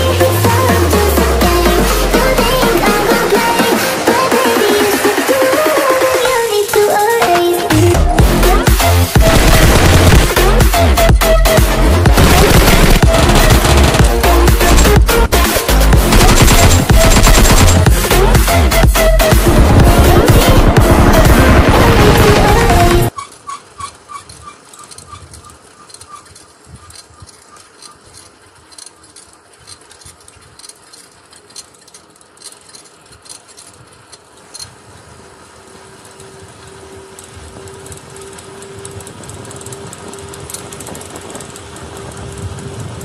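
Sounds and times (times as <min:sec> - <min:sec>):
wind: 0:00.0 - 0:16.0, 0:16.8 - 0:43.0
steady hum: 0:00.0 - 0:23.2
bicycle clicks and rattles: 0:00.0 - 0:43.0
bicycle road noise: 0:00.0 - 0:43.0.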